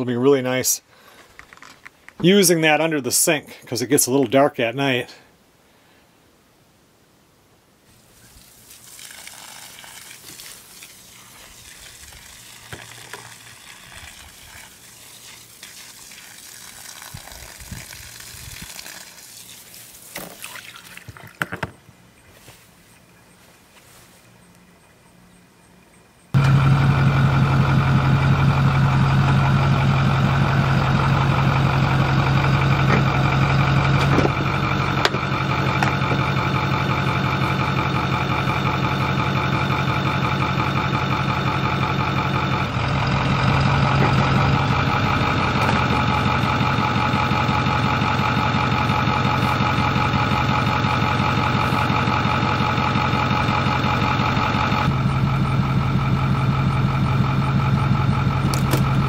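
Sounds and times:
pickup truck engine idling: 0:26.4 - 0:59.0.

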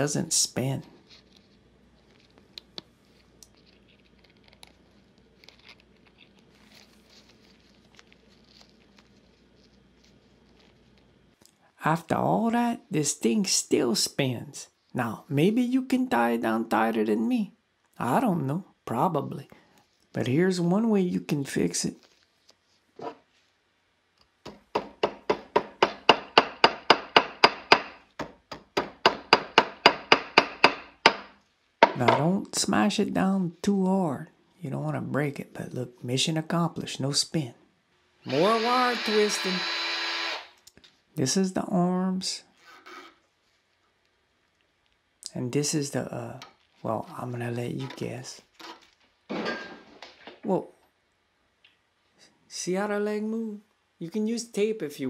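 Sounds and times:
hammer tapping wire on vise: 0:24.4 - 0:32.2.

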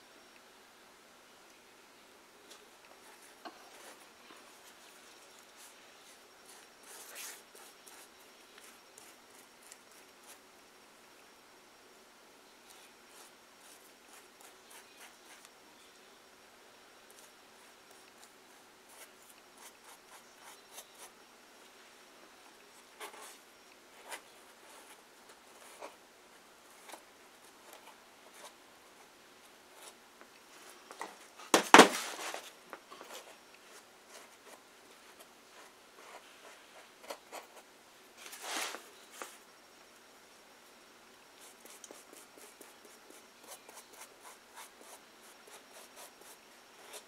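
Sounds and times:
paper rustling: 0:30.9 - 0:33.3, 0:38.2 - 0:39.4.

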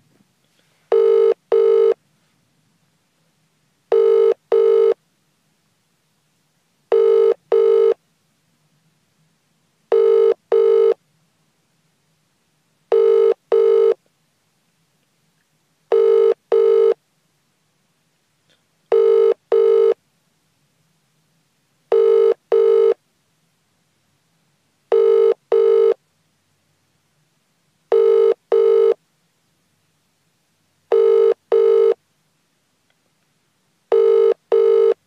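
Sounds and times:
telephone ringing tone: 0:00.9 - 0:02.0, 0:03.9 - 0:05.0, 0:06.9 - 0:08.0, 0:09.9 - 0:11.0, 0:12.9 - 0:14.0, 0:15.9 - 0:17.0, 0:18.9 - 0:20.0, 0:21.9 - 0:23.0, 0:24.9 - 0:26.0, 0:27.9 - 0:29.0, 0:30.9 - 0:32.0, 0:33.9 - 0:35.0.

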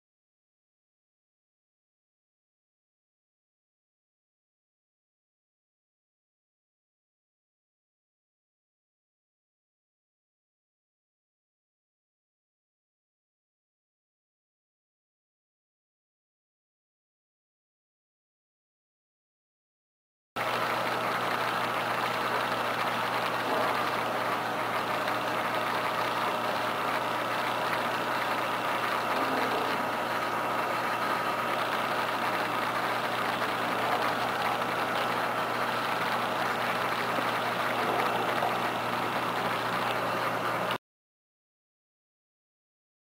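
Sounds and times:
aquarium pumps humming: 0:20.4 - 0:40.8.

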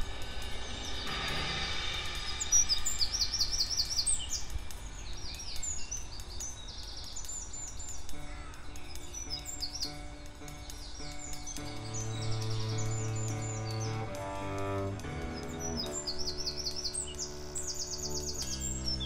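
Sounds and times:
low sustained music notes: 0:00.0 - 0:19.0
songbirds chirping: 0:00.0 - 0:19.0
low steady rumble: 0:11.2 - 0:19.0.

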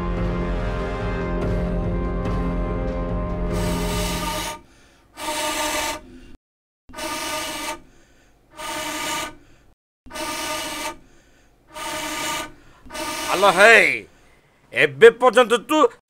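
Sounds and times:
breaths blown through a pipe: 0:03.5 - 0:06.4, 0:07.0 - 0:14.2.

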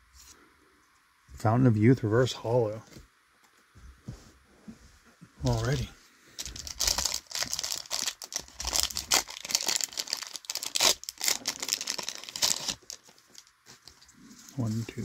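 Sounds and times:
foil wrapper crinkling and tearing: 0:06.4 - 0:13.9.

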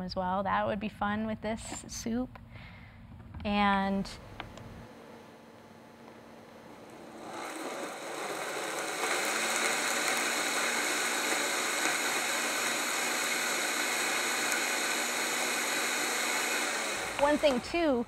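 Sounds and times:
blender motor running: 0:07.0 - 0:18.0.

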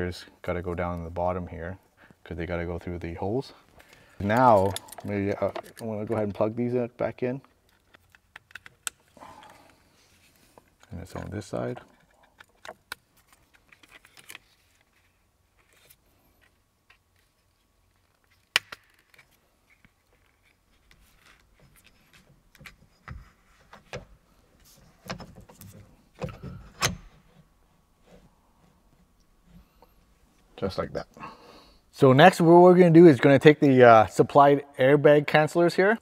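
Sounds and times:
plastic connectors clicking and rattling: 0:04.2 - 0:06.4.

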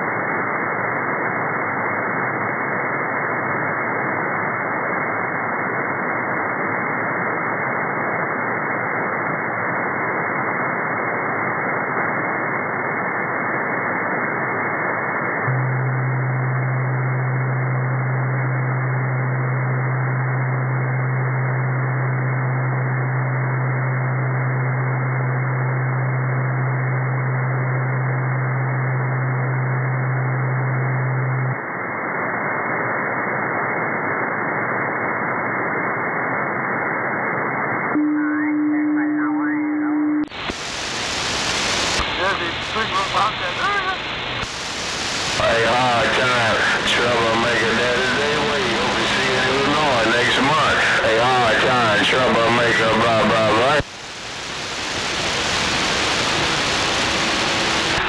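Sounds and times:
radio static hiss: 0:00.0 - 0:58.0
low buzzy tone: 0:15.4 - 0:31.7, 0:37.9 - 0:40.5.

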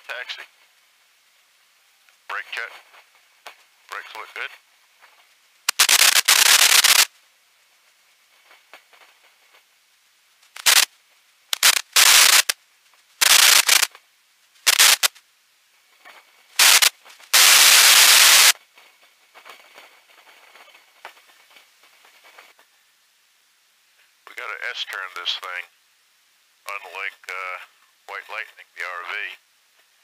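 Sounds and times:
intercom static bursts: 0:05.7 - 0:07.1, 0:10.5 - 0:10.9, 0:11.6 - 0:12.6, 0:13.2 - 0:13.9, 0:14.7 - 0:15.2, 0:16.6 - 0:18.6.

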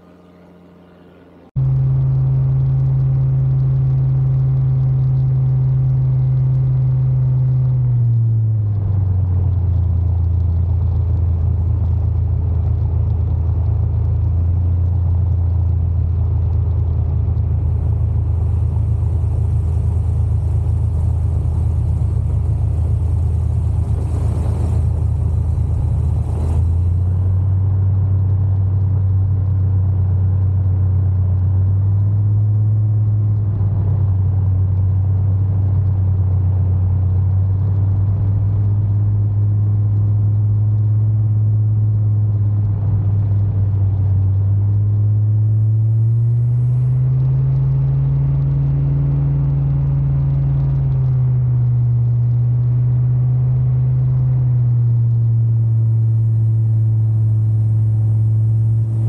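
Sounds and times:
wind rumbling on microphone: 0:07.8 - 0:53.0, 0:53.8 - 0:59.0
two-stroke engine droning: 0:10.6 - 0:28.0, 0:45.1 - 0:51.0, 0:52.8 - 0:59.0.

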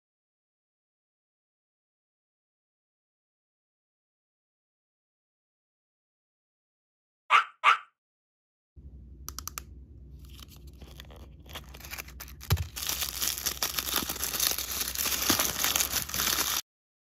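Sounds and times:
paper wrapping crinkling: 0:10.2 - 0:16.6
plastic wrapper tearing: 0:10.2 - 0:16.6.

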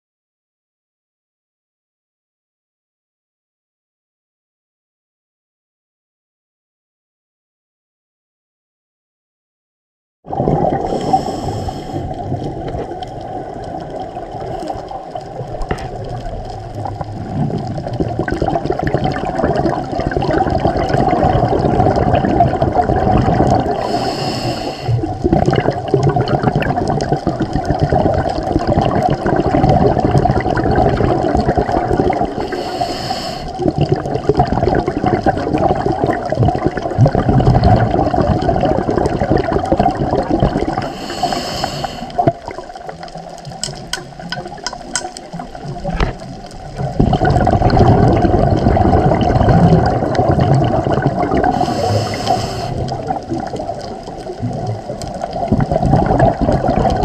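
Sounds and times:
underwater water rush and gurgle: 0:10.2 - 0:57.0
hissing bursts of bubbles: 0:10.3 - 0:57.0
regulator exhaust bubbles: 0:25.0 - 0:32.4, 0:42.1 - 0:57.0.

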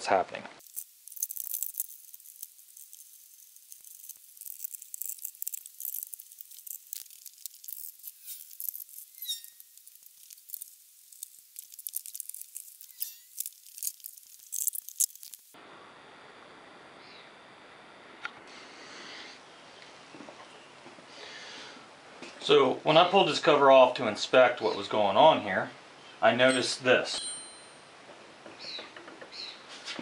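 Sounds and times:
screws and tool clicking and rattling: 0:00.6 - 0:15.6
short high squeaks: 0:00.8 - 0:15.4.

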